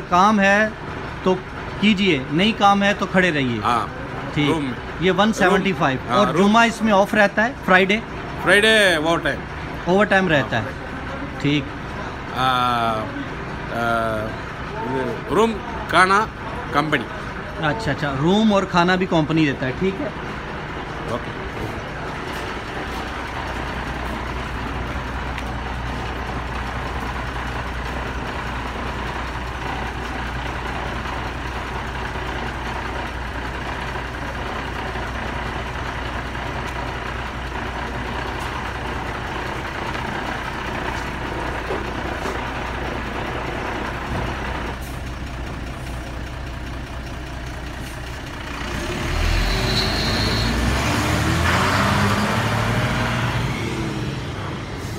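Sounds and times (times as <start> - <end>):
minibus engine idling and revving: 0.0 - 54.9.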